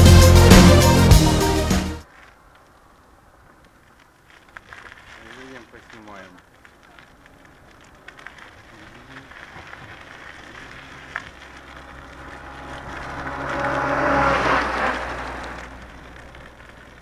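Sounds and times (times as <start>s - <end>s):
tyre noise: 2.0s - 17.0s
vehicle passing by: 10.7s - 16.4s.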